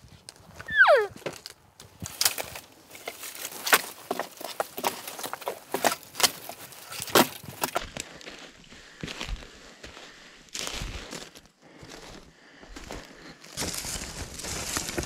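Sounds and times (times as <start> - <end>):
boots snapping dry twigs: 0.2 - 9.6, 12.9 - 15.0
crunching leaves: 0.3 - 9.2, 12.9 - 15.0.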